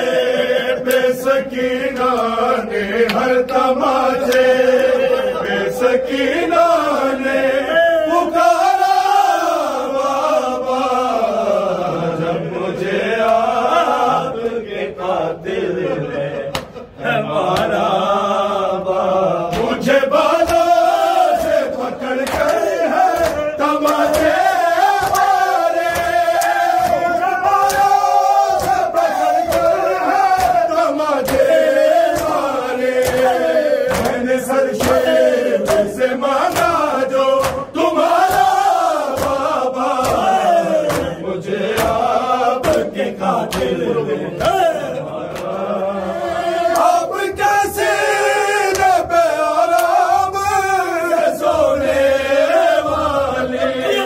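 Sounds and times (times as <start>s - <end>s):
men chanting in unison: 0.0s - 54.0s
hands slapping chests: 0.8s - 1.2s, 3.0s - 5.0s, 16.5s - 16.8s, 17.5s - 17.8s, 19.5s - 45.6s, 48.6s - 50.1s.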